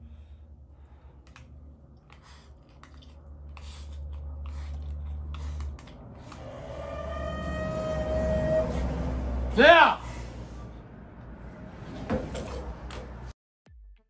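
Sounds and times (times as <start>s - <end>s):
slurping and chewing: 1.2s - 6.7s.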